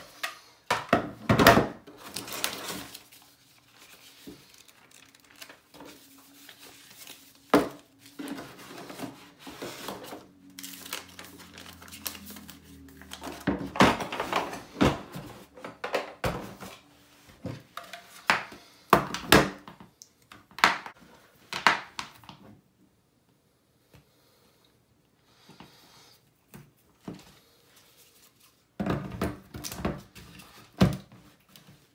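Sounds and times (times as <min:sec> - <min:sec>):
paper pages riffling: 0:02.0 - 0:13.4.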